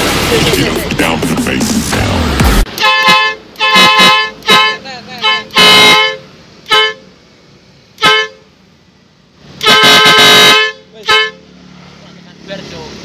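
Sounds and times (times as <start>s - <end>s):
two-tone trumpet horn blasts: 2.7s - 7.0s, 8.0s - 8.5s, 9.6s - 11.4s.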